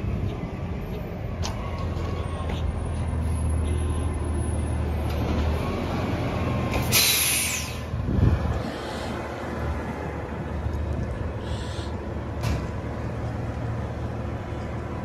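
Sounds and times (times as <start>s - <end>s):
air brake hiss: 6.8s - 7.9s.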